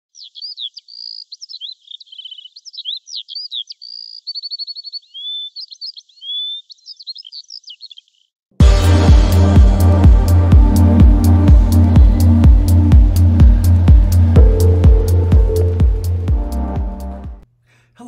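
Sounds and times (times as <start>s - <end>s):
songbird singing: 0.1s - 8.4s.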